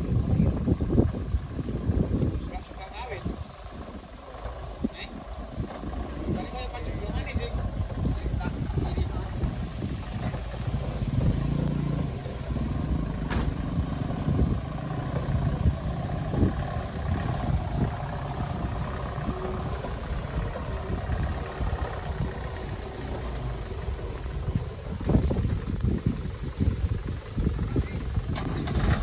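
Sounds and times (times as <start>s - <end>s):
diesel truck engine running: 0.0s - 29.0s
clatter: 13.2s - 13.8s, 27.8s - 29.0s.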